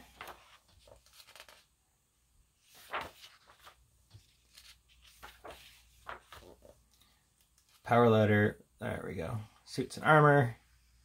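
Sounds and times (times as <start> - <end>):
book pages turning: 0.0 - 1.7, 2.6 - 7.9.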